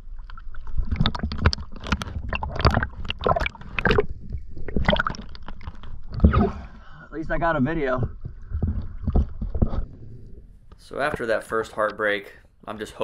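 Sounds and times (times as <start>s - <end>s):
water splashing and gurgling: 0.0s - 10.2s.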